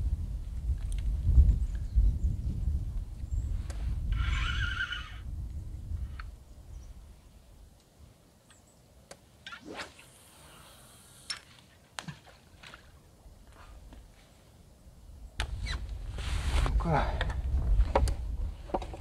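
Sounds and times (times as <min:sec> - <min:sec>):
fishing line running off spool: 0:04.1 - 0:05.3, 0:09.4 - 0:11.6.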